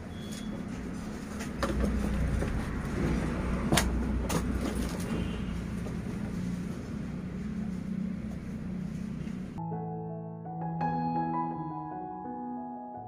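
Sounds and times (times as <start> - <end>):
background traffic hum: 0.0 - 9.6.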